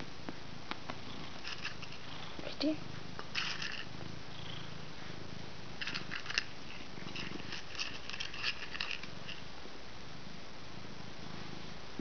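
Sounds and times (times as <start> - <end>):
cat purring: 0.4 - 12.0
cat crunching dry kibble: 1.3 - 2.1, 3.2 - 3.9, 5.8 - 9.4.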